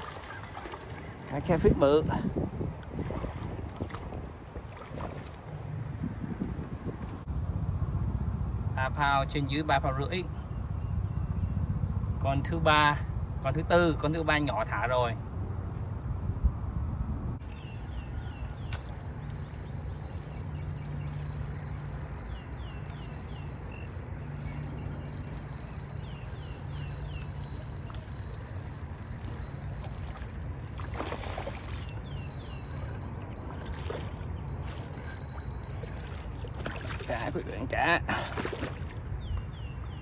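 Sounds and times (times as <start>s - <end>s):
small bird chirping: 17.4s - 37.2s.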